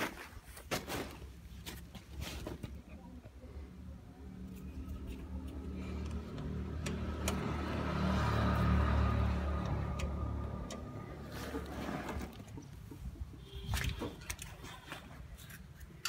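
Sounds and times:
tractor diesel engine running: 4.5 - 13.1.

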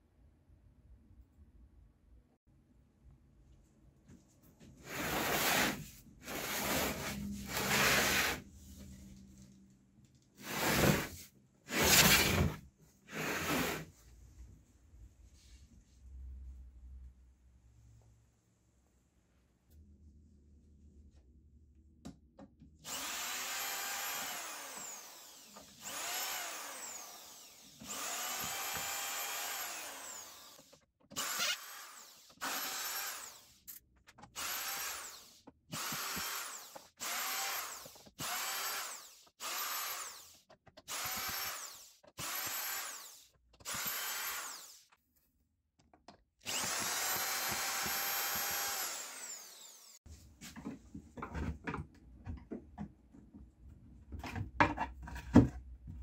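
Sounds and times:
cordless drill motor whine: 22.9 - 33.4, 40.9 - 44.8, 46.5 - 50.0.

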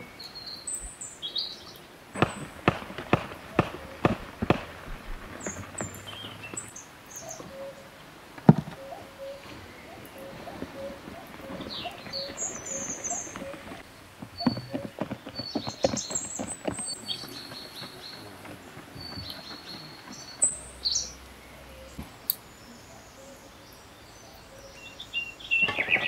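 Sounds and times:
birds chirping and calling: 0.0 - 26.0.

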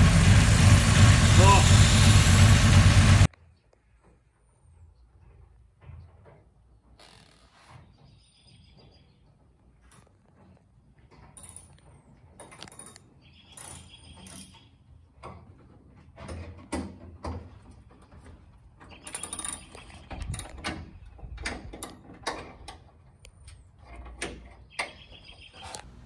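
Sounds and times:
metallic clicks and creaks: 9.8 - 25.9.

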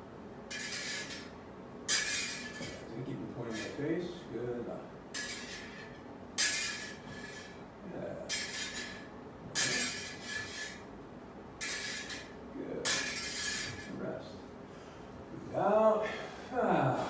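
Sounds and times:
sword blades clashing and sliding: 0.5 - 1.3, 1.9 - 3.8, 5.2 - 7.6, 8.3 - 10.8, 11.6 - 12.3, 12.9 - 14.0.

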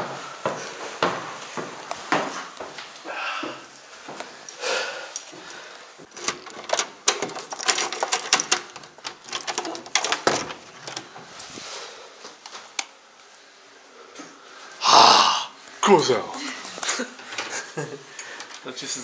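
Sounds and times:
clicks and knocks of handling: 6.1 - 11.3.

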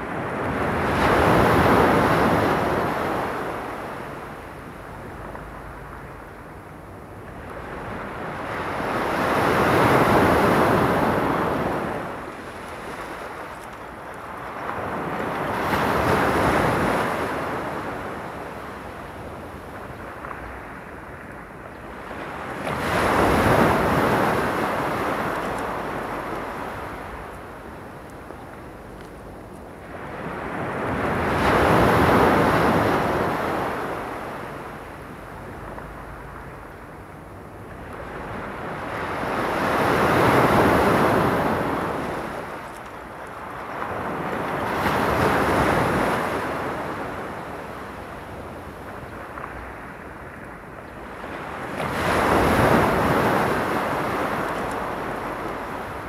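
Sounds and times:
waves washing onto stony beach: 0.0 - 56.0.

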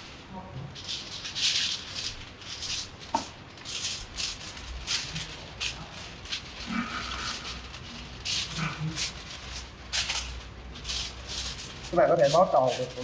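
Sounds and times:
material rustling: 0.0 - 13.0.

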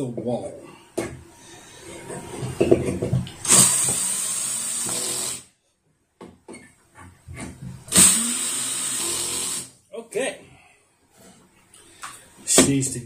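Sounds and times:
power drill driving screws: 3.4 - 5.5, 7.9 - 9.7.

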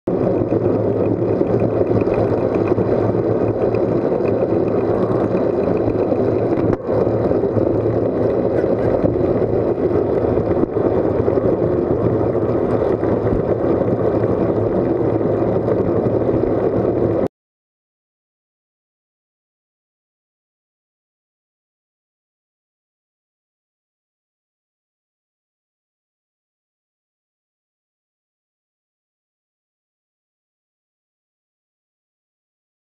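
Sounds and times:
bicycle tyre noise on asphalt: 0.1 - 17.3
wind rushing over microphone: 0.1 - 17.3.

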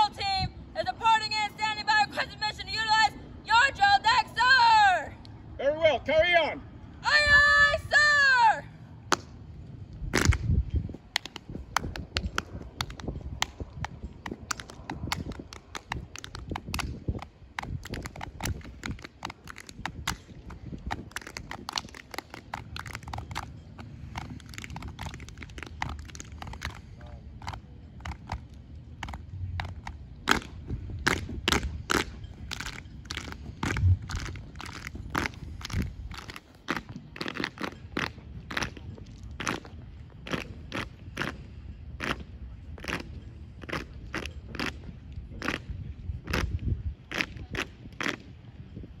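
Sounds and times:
hand claps: 11.1 - 23.5, 24.1 - 26.8.

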